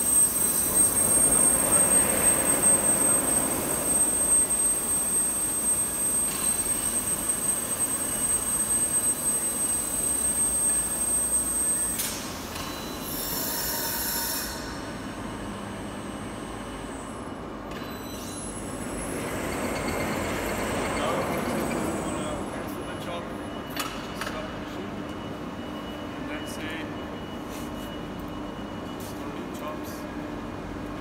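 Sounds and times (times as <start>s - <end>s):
high-pitched drive whine: 0.0s - 23.6s.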